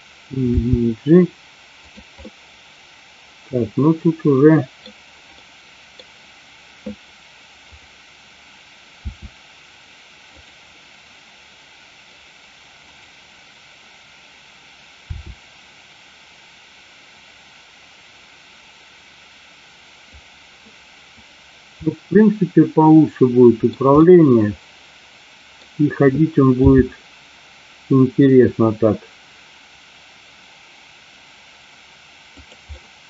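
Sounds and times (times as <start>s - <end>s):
microphone hiss: 0.0s - 33.0s
soft low thumps: 9.1s - 9.4s, 15.1s - 15.4s.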